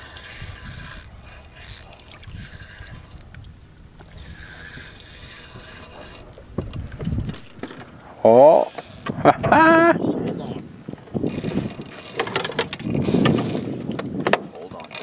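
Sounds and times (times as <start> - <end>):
fishing reel cranking: 0.0 - 3.4, 4.0 - 6.4, 8.5 - 9.4, 11.3 - 13.8.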